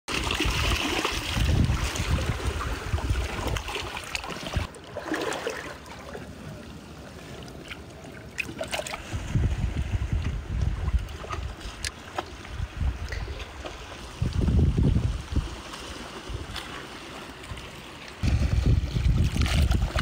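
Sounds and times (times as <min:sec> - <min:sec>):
small splashes: 0:00.1 - 0:06.3, 0:07.2 - 0:09.3
seawater sloshing among rocks: 0:00.1 - 0:20.0
wind rumble on microphone: 0:00.4 - 0:03.7, 0:09.0 - 0:16.6, 0:18.2 - 0:20.0.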